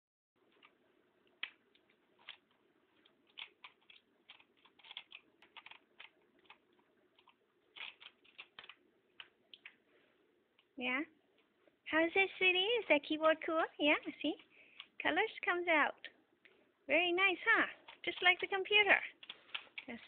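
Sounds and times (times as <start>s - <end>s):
mechanical keyboard clicks: 3.3s - 6.6s, 7.2s - 9.7s.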